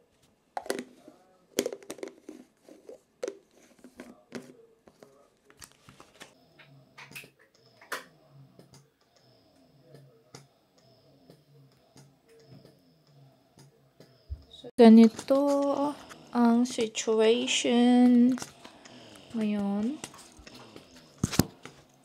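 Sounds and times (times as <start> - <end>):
plastic parts clicking and knocking: 1.6 - 5.8.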